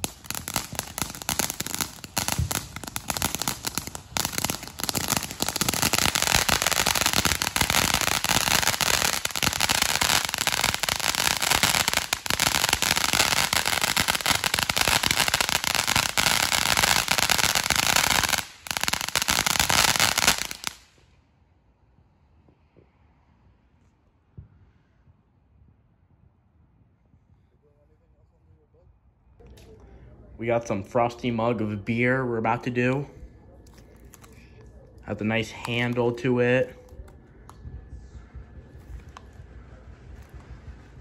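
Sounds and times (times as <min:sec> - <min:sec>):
firework fountain crackling hiss: 0:00.0 - 0:21.0.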